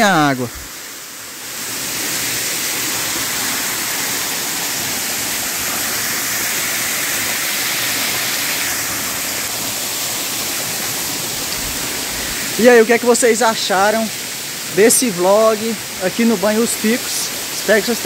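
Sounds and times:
waterfall splashing: 0.0 - 18.0.

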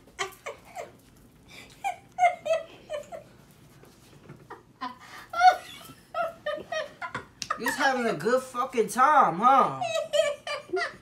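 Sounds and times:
woman laughing: 0.0 - 3.4, 4.4 - 8.0, 9.6 - 11.0.

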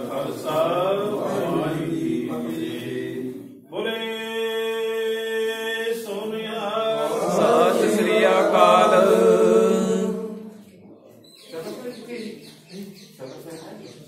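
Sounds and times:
men chanting a response: 0.0 - 10.6.

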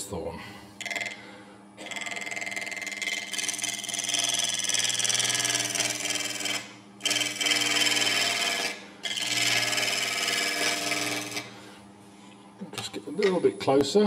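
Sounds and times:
lathe humming: 0.8 - 13.8
gouge cutting spinning wood: 1.8 - 11.5.

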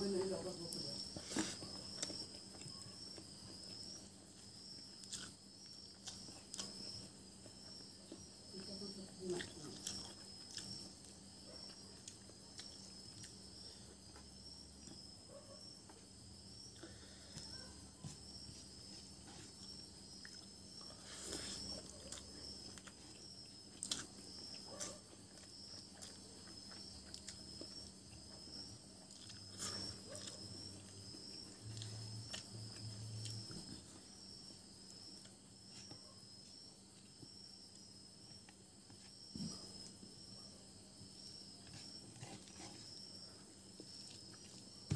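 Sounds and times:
crickets chirping: 0.0 - 44.9
clicks and smacks of eating: 4.7 - 8.3, 9.3 - 13.4, 21.6 - 33.7.

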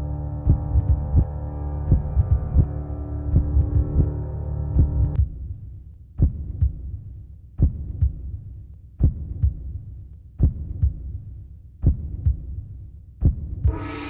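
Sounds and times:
steady low hum: 0.0 - 5.6, 13.3 - 14.0
heartbeat thumps: 0.4 - 5.6, 6.2 - 13.9.

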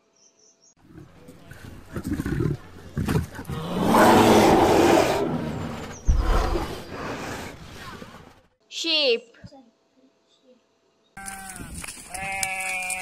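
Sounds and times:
bear growling: 0.8 - 8.4.

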